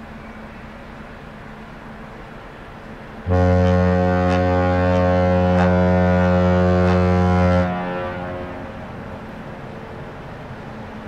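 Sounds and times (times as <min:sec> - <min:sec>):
ship horn long deep blast: 0:03.2 - 0:09.2.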